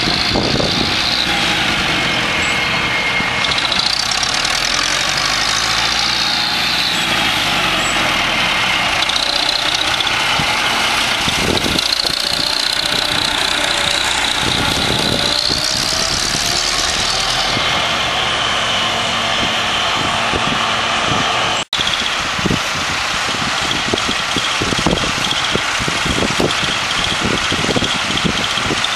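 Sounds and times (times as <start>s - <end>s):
tractor engine running: 0.0s - 28.9s.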